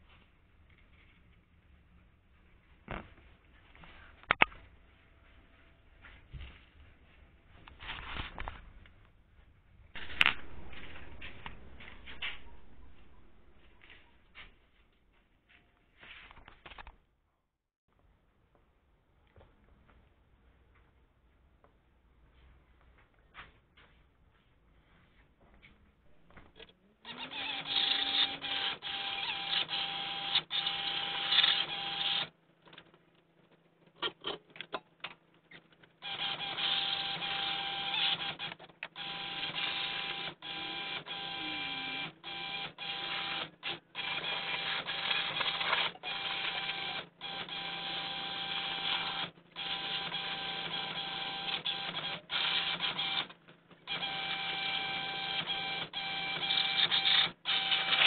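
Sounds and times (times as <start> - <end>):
steady whine: 9.6 - 14.7.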